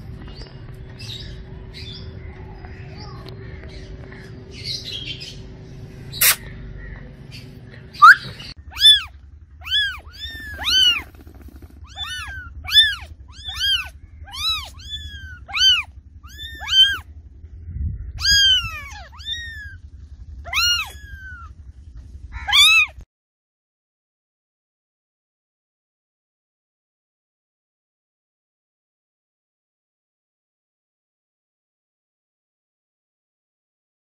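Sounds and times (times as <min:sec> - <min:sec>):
low rumble: 0:00.0 - 0:23.0
cat meowing: 0:08.0 - 0:17.1, 0:18.1 - 0:19.8, 0:20.4 - 0:21.6, 0:22.4 - 0:23.0.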